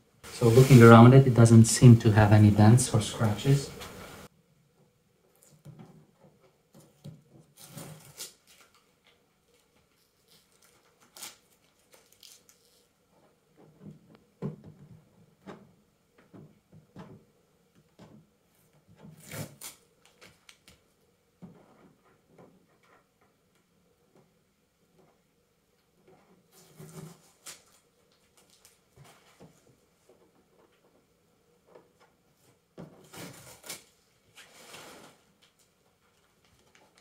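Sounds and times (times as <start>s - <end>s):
plastic film rustling: 0.3s - 1.8s, 7.5s - 12.9s, 26.5s - 29.7s, 33.0s - 37.0s.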